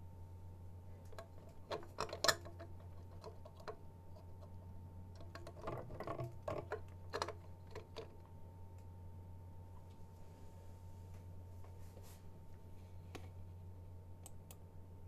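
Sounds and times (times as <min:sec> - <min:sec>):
steady low hum: 0:00.0 - 0:15.0
clicks and rustles of cable handling: 0:01.0 - 0:08.9.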